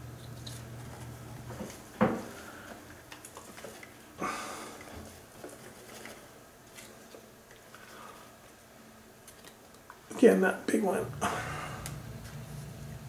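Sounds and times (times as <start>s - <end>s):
packing paper rustling: 0.2s - 4.2s, 4.8s - 8.2s.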